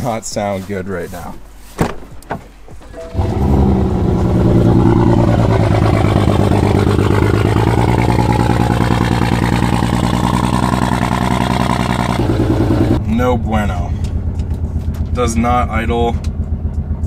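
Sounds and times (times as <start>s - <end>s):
car engine idling roughly: 4.2s - 13.0s, 13.9s - 17.0s.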